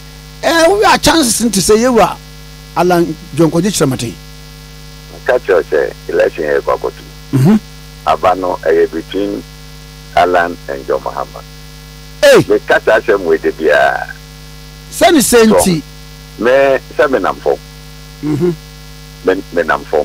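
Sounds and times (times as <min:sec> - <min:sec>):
electrical mains hum: 0:00.0 - 0:20.0
person talking on telephone: 0:02.8 - 0:04.2, 0:05.1 - 0:07.1, 0:08.0 - 0:09.4, 0:10.1 - 0:11.4, 0:12.2 - 0:14.2, 0:15.0 - 0:15.8, 0:16.4 - 0:17.6, 0:19.2 - 0:20.0.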